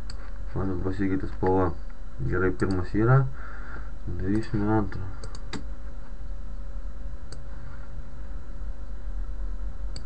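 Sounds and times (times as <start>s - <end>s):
faint whine: 0.0s - 10.0s
low hum: 0.0s - 10.0s
computer mouse click: 5.2s - 5.7s.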